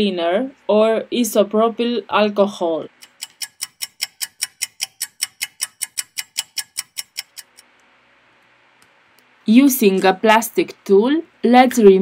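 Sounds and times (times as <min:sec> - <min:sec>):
clock ticking rapidly: 0:02.9 - 0:07.6.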